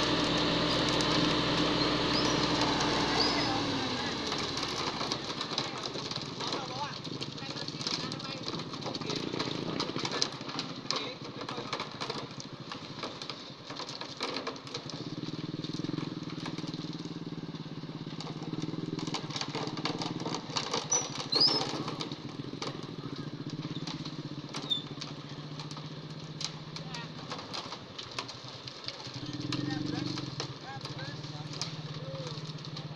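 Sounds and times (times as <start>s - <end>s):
diesel truck engine running: 0.0s - 11.0s, 11.9s - 32.9s
concrete pouring down chute: 0.0s - 32.9s
shovels scraping concrete: 0.2s - 12.3s, 18.4s - 22.8s.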